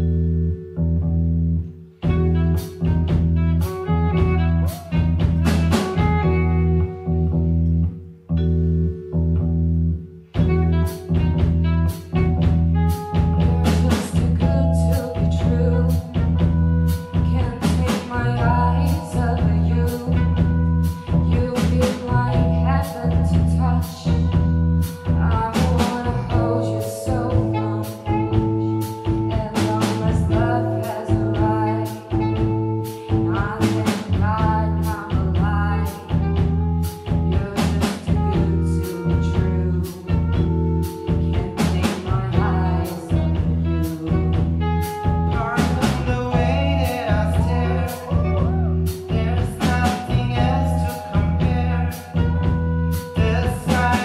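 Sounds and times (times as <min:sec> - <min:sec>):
electric bass: 0:00.0 - 0:54.0
keyboard: 0:00.0 - 0:54.0
drum kit: 0:01.6 - 0:07.8, 0:10.2 - 0:54.0
saxophone: 0:02.0 - 0:08.5, 0:09.1 - 0:54.0
person singing: 0:13.3 - 0:44.5, 0:45.3 - 0:54.0.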